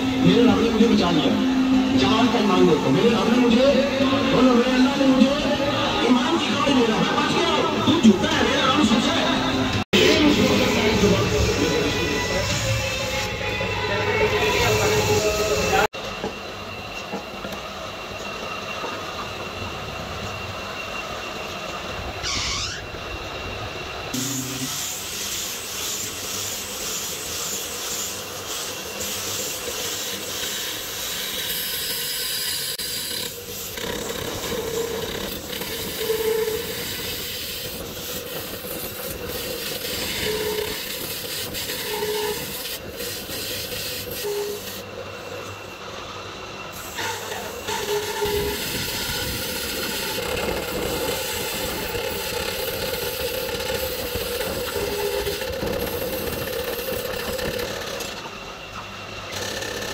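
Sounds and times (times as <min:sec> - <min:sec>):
electric motor and drive belt: 0:24.1 - 0:45.6, 0:46.7 - 0:59.9.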